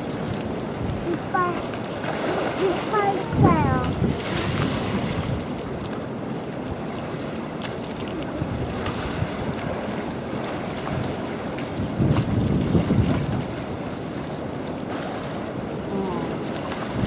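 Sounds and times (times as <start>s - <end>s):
wind on microphone: 0.0s - 15.0s, 15.7s - 17.0s
water splashing and churning: 0.0s - 17.0s.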